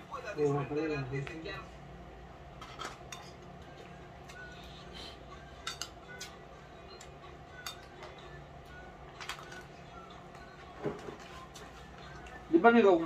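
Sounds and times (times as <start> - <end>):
steady low hum: 0.0 - 13.0
metal spoons clinking on plates: 2.6 - 3.5, 5.5 - 6.4, 7.0 - 8.3.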